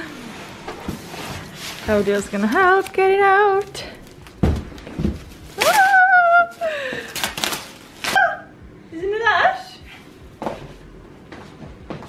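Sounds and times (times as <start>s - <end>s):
soft knocks and shuffles: 9.9s - 12.0s
footsteps on wooden floor: 10.2s - 12.0s.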